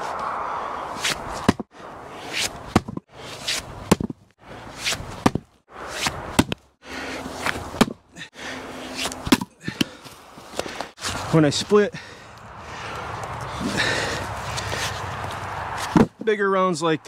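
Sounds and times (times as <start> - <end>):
rushing swing noise: 0.0 - 16.2
splitting maul striking wood: 5.2 - 6.6.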